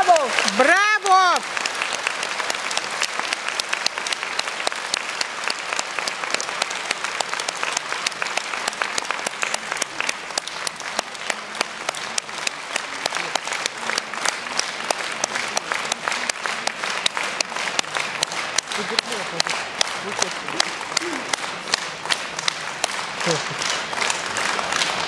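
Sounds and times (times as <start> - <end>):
audience applauding: 0.0 - 25.0.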